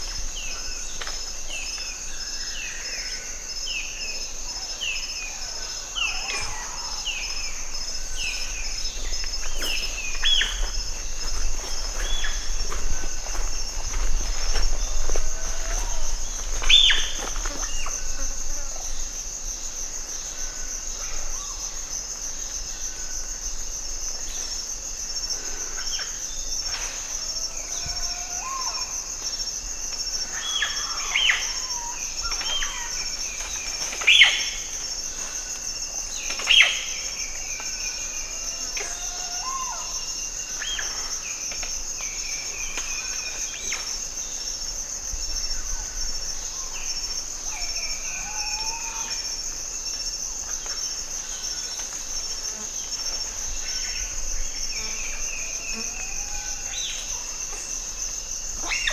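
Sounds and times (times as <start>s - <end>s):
insect drone: 0.0s - 58.9s
animal calls and chirps: 58.5s - 58.9s.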